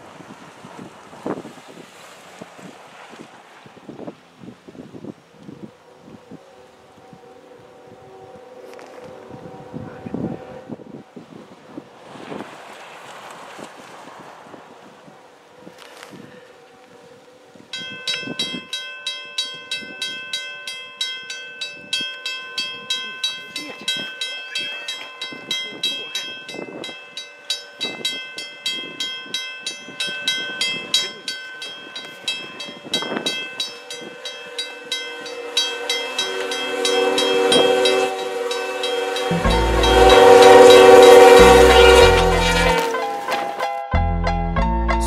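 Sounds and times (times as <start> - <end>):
train horn: 5.6 - 11.6, 15.0 - 17.7, 32.9 - 43.6
level crossing bell ringing: 17.8 - 44.0.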